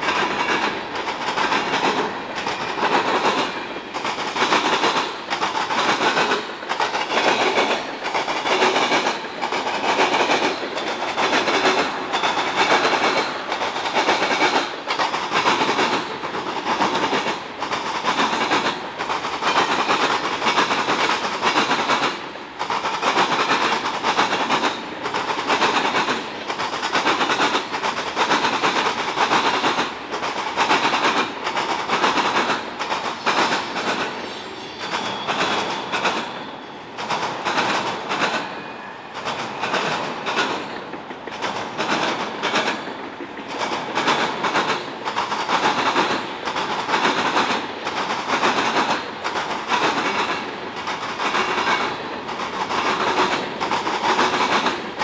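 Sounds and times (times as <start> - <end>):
train wheels clacking: 0.0 - 55.0.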